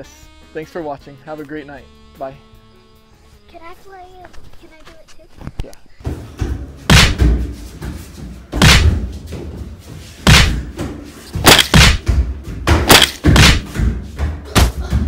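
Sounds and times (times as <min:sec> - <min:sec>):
feet thudding on wooden floor: 0:06.1 - 0:15.0.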